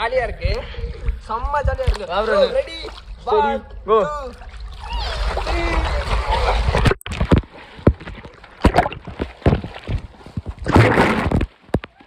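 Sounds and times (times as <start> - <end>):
water splashing on microphone: 4.3 - 11.7.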